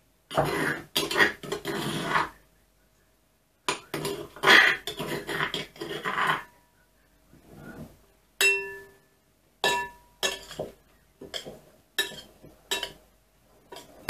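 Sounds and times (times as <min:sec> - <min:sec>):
pestle grinding in mortar: 0:00.3 - 0:02.3.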